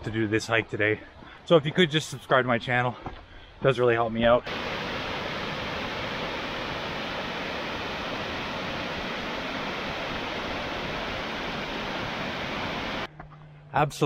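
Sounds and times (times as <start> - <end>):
waterfall rushing: 4.5 - 13.1.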